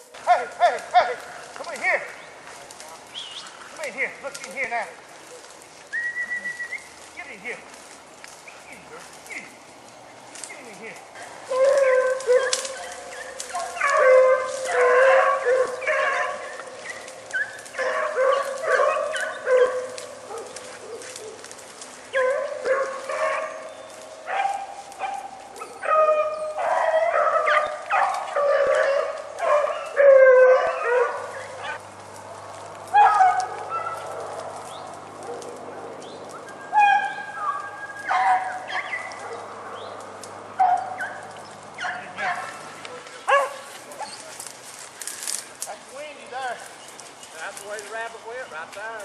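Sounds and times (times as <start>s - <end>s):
dogs barking and yelping: 10.4s - 45.4s.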